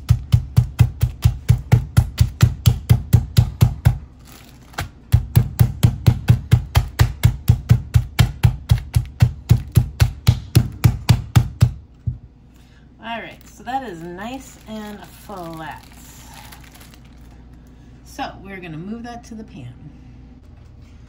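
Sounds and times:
mallet pounding meat: 0.0s - 4.1s, 5.0s - 12.2s.

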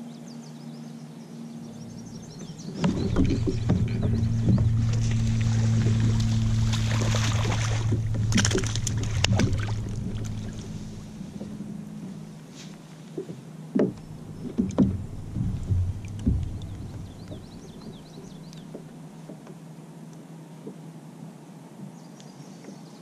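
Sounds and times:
knocks and thumps: 2.1s - 12.2s, 13.2s - 18.9s
fish thrashing and splashing: 2.2s - 11.7s, 13.9s - 18.6s.

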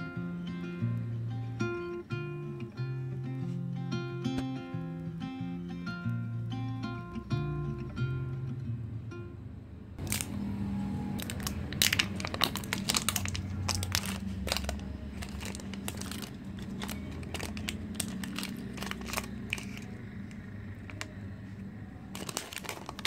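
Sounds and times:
plastic label peeling and crinkling: 10.0s - 10.4s, 11.0s - 21.2s, 22.1s - 23.0s.

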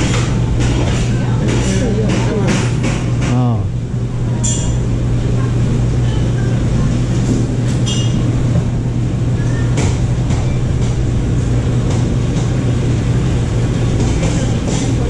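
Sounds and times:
shop machinery humming: 0.0s - 15.0s.

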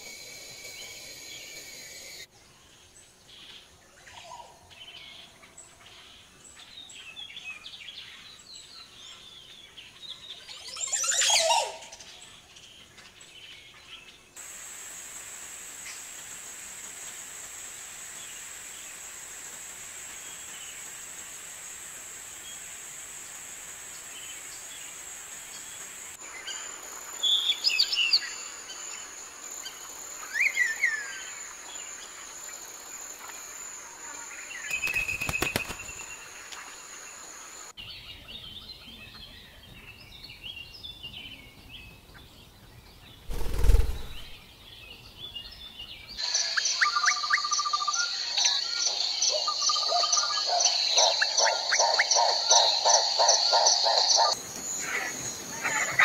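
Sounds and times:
high insect buzz: 0.0s - 2.3s, 43.3s - 44.4s
small birds chattering: 33.3s - 41.5s, 45.6s - 56.0s
sharp down-slurred bird calls: 43.3s - 44.4s, 46.2s - 56.0s.

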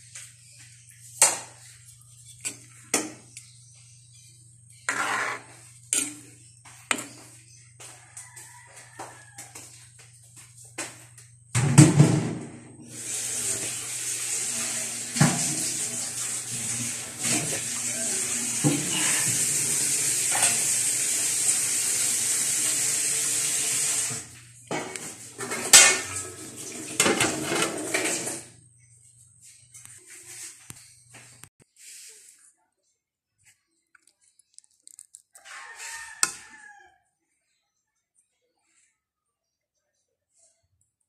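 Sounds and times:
pot clattering: 24.7s - 28.4s.

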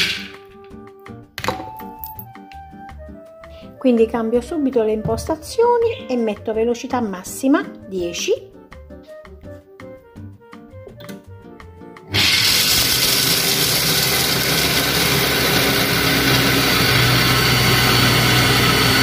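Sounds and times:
kitchen machine grinding nuts: 0.0s - 0.4s, 12.1s - 19.0s
background music: 0.0s - 19.0s.

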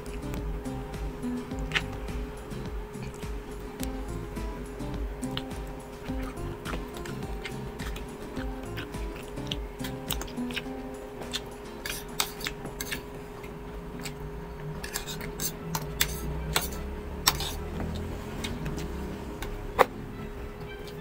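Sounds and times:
chewing: 1.6s - 2.0s, 5.2s - 19.9s
fork clicking on a plate: 11.3s - 13.0s.

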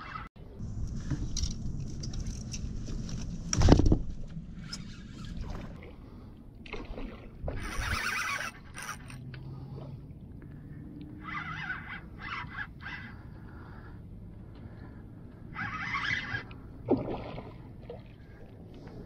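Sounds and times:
rustling and scraping: 0.6s - 5.8s.

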